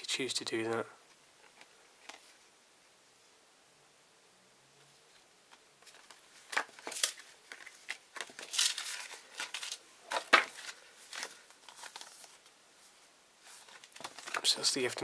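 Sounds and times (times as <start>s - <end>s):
paper rustling and crinkling: 5.1s - 15.0s
sharp paper crackles: 5.8s - 12.5s, 13.4s - 15.0s.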